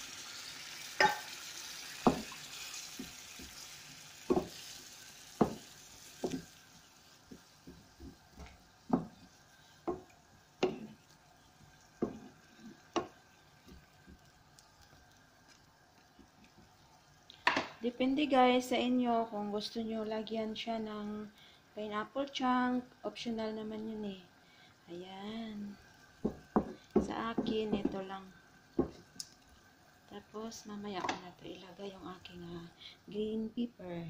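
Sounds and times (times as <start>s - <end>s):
sauce sizzling: 0.0s - 34.0s
wooden spoon knocking against pan: 2.0s - 2.4s, 4.3s - 4.6s, 5.4s - 6.5s, 7.3s - 9.2s, 9.8s - 11.0s, 12.0s - 14.2s, 26.2s - 28.0s, 28.8s - 29.0s.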